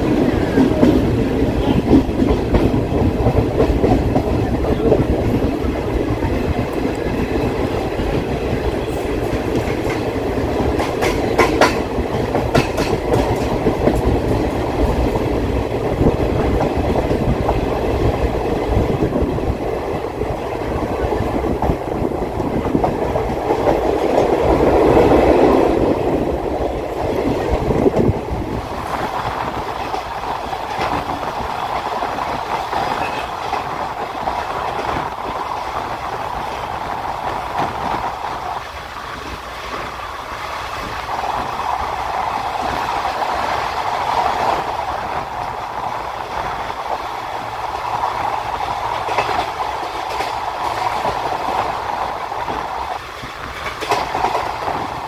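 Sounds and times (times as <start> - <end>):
train wheels clattering over rail joints: 0.0 - 18.8, 46.2 - 55.0
train rumble: 0.0 - 55.0.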